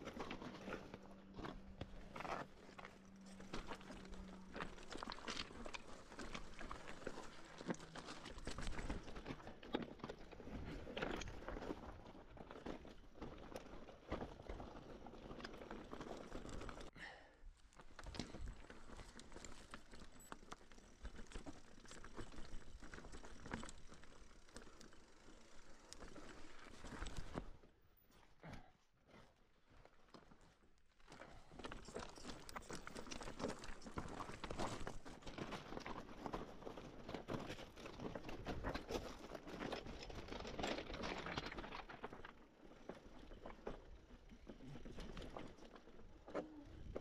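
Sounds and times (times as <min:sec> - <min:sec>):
footsteps on stony ground: 0:00.0 - 0:16.9, 0:29.1 - 0:47.0.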